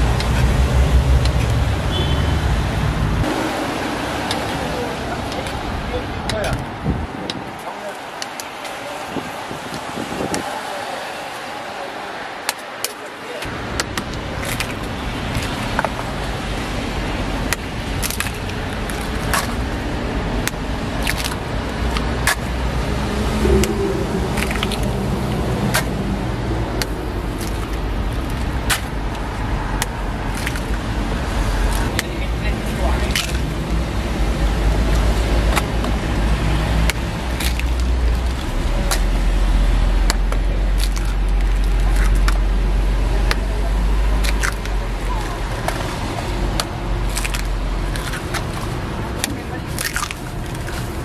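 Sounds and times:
steady low rumble: 0:00.0 - 0:07.4, 0:13.5 - 0:51.0
eggshells cracking: 0:46.6 - 0:51.0.

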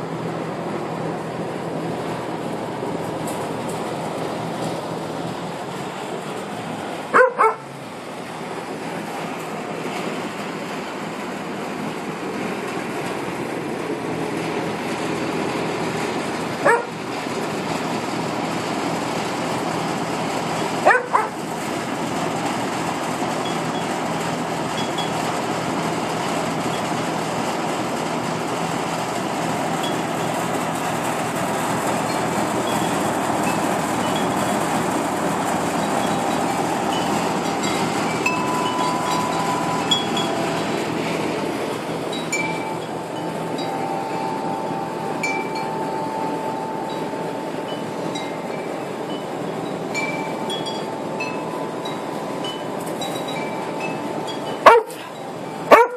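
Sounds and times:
steady rushing background noise: 0:00.0 - 0:55.8
dog yelping: 0:07.1 - 0:07.7, 0:16.6 - 0:16.9, 0:20.8 - 0:21.4, 0:54.6 - 0:55.1, 0:55.7 - 0:55.9.

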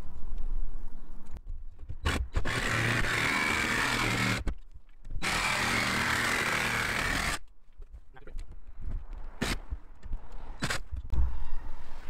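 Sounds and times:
jigsaw cutting sheet metal: 0:02.0 - 0:04.5, 0:05.2 - 0:07.4.

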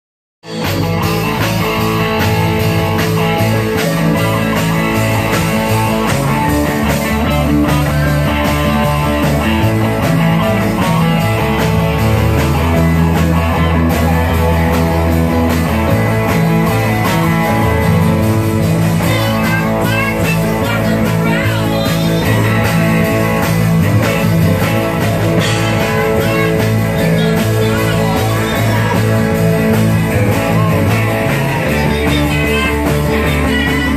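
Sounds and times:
live rock band playing: 0:00.4 - 0:33.9
person singing: 0:18.9 - 0:23.5, 0:24.6 - 0:33.9.

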